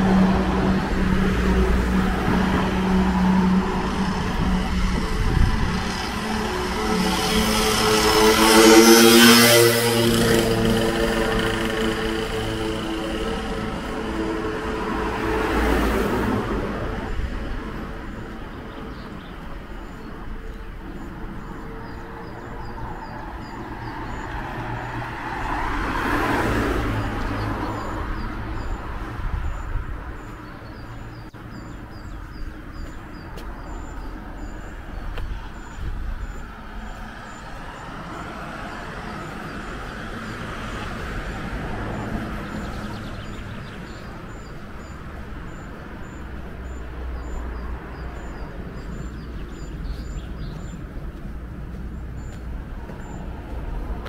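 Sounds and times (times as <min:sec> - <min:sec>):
cars passing: 0:00.0 - 0:54.0
bird chirping: 0:27.0 - 0:51.1.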